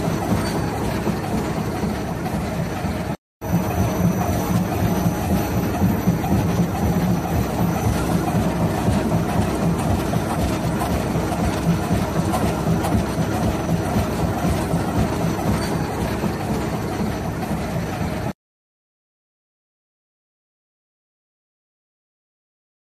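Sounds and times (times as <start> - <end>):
cutting machine clattering: 0.0 - 18.4.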